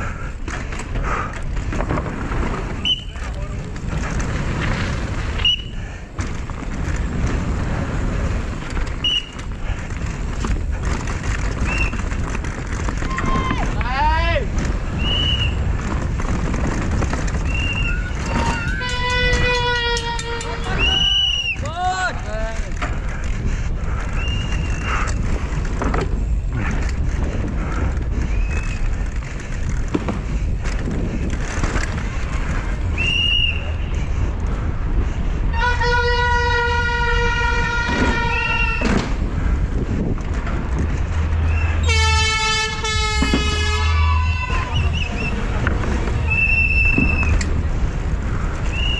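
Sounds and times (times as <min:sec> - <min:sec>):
bike knocking and rattling: 0:00.0 - 0:48.9
wind and tyres on dirt rumble: 0:00.0 - 0:48.9
high whistling tones: 0:02.8 - 0:03.2, 0:05.4 - 0:05.8, 0:09.0 - 0:09.4, 0:11.6 - 0:12.0, 0:14.9 - 0:15.6, 0:17.4 - 0:21.6, 0:24.1 - 0:25.0, 0:32.9 - 0:33.8, 0:41.5 - 0:41.9, 0:44.3 - 0:45.5, 0:46.2 - 0:47.4, 0:48.6 - 0:48.9.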